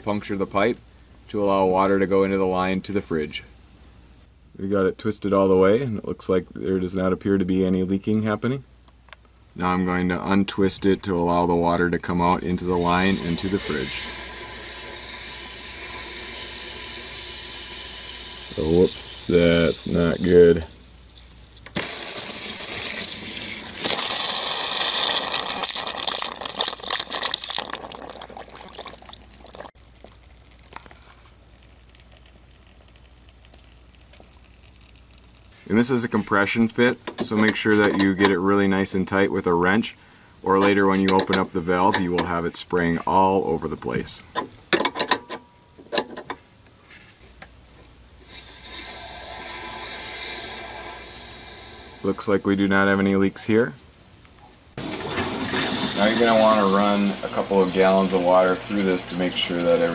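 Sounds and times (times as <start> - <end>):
water spraying with a hiss: 12.2 - 25.0, 48.2 - 52.1, 54.8 - 59.9
water dripping: 21.2 - 35.6, 54.8 - 59.9.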